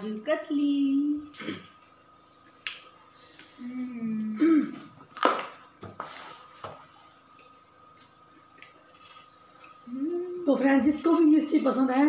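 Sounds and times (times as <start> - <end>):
person humming: 3.5 - 4.8, 9.9 - 10.4.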